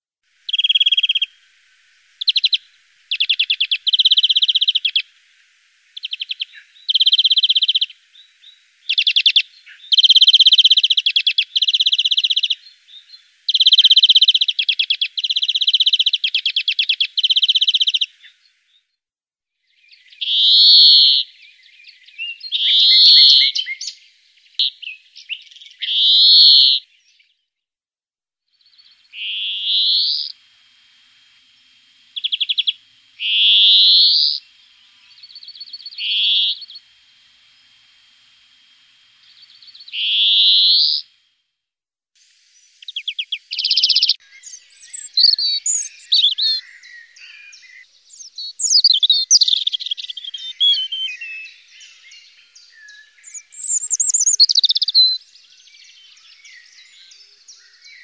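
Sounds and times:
finch singing: 0:02.2 - 0:05.0, 0:06.0 - 0:18.4, 0:19.8 - 0:26.8, 0:28.6 - 0:30.4, 0:32.2 - 0:36.9, 0:42.8 - 0:58.0.

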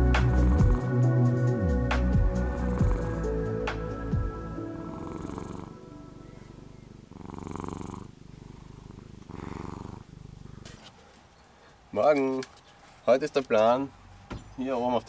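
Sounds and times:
cat purring: 0:00.0 - 0:01.0, 0:02.5 - 0:03.4, 0:04.8 - 0:11.1.

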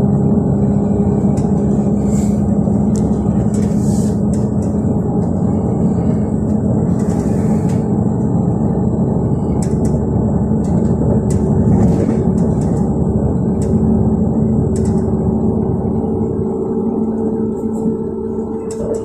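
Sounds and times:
train rumble with low hum: 0:00.0 - 0:19.0.

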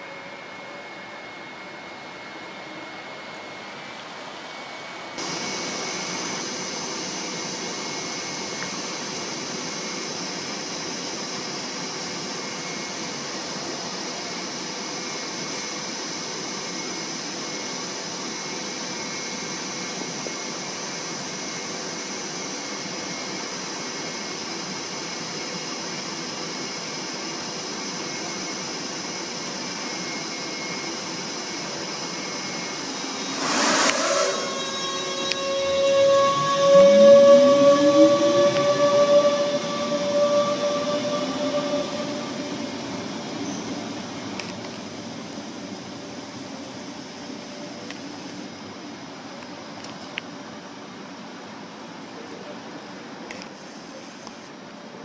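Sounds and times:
train ventilation fans whirring: 0:00.0 - 0:55.0
distant train noise: 0:31.7 - 0:47.0.

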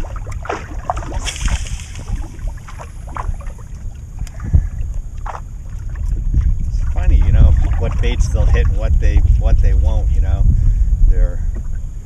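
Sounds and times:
wind buffeting microphone: 0:00.0 - 0:12.0
brief hiss: 0:01.2 - 0:02.3.

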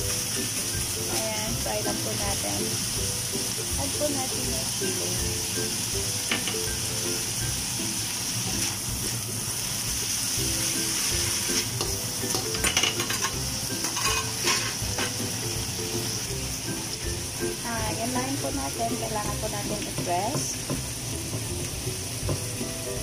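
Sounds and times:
meat sizzling in a wok: 0:00.0 - 0:23.0
spatula scraping a pan: 0:12.6 - 0:15.2.

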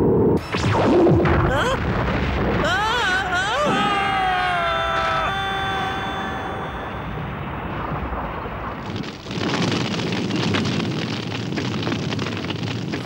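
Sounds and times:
low rumble: 0:00.0 - 0:11.3
crackling fire: 0:00.2 - 0:13.0
loud explosion blast: 0:00.4 - 0:13.0.

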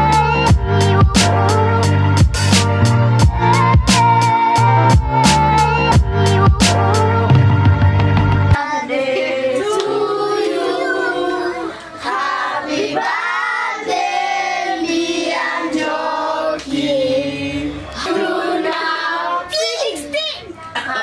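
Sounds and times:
children singing: 0:08.6 - 0:19.5.

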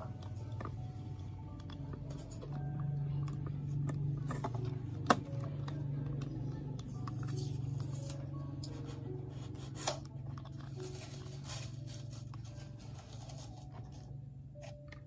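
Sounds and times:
foam rubbing and scraping on plastic: 0:07.3 - 0:14.1.

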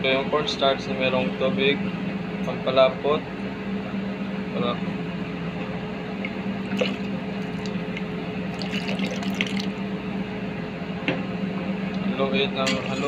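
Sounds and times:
steady low hum: 0:00.0 - 0:13.0
liquid pouring and splashing in pot: 0:06.7 - 0:09.8.

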